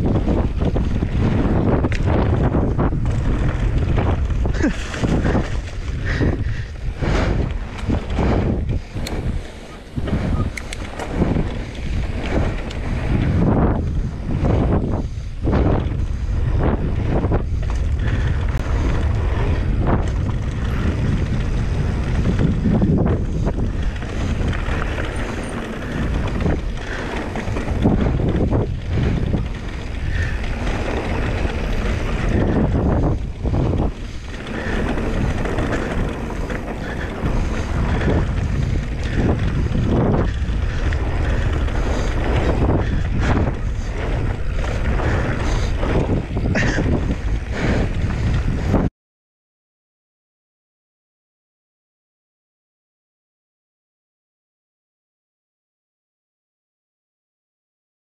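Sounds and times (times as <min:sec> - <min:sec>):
wind buffeting microphone: 0:00.0 - 0:48.9.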